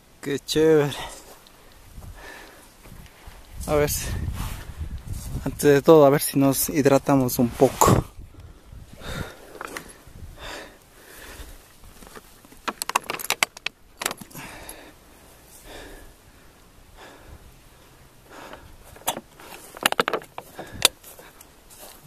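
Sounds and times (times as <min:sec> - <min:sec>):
backpack and bottle clicking and rattling: 0:09.4 - 0:10.0, 0:11.9 - 0:14.8, 0:18.5 - 0:21.5.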